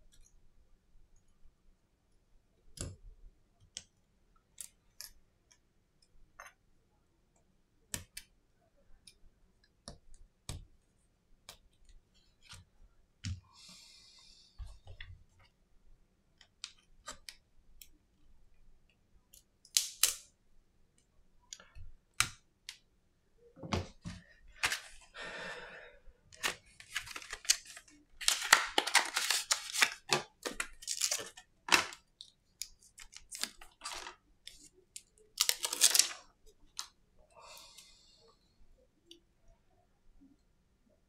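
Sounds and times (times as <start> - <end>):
packaging rustling and tearing: 26.4 - 32.0, 35.4 - 36.2.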